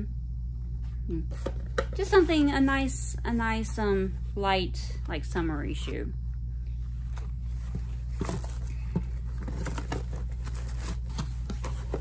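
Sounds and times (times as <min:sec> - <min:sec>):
cardboard packaging crinkling: 0:07.0 - 0:12.0.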